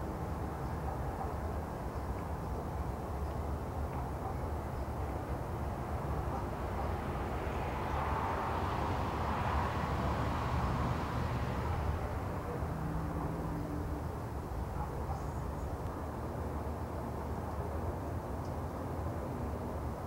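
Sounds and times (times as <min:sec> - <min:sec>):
low rumble of traffic: 0:00.0 - 0:20.0
vehicle passing: 0:06.0 - 0:14.8.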